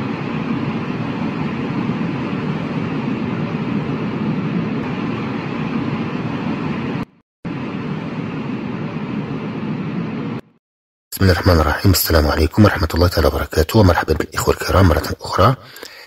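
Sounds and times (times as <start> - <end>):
low rumbling noise with hiss: 11.2 - 16.0.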